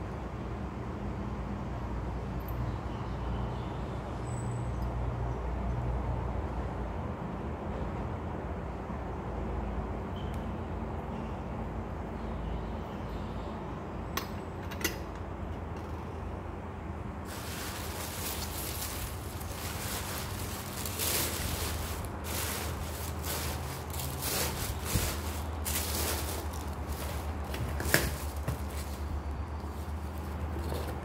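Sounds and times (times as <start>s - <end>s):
tissue paper crinkling: 17.3s - 30.5s.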